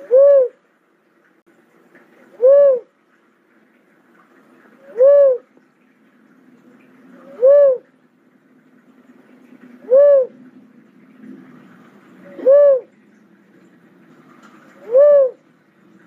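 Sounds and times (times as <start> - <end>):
dove cooing: 0.0 - 0.6, 2.3 - 2.9, 4.7 - 5.5, 7.1 - 7.9, 9.6 - 10.5, 11.1 - 13.1, 14.4 - 15.7.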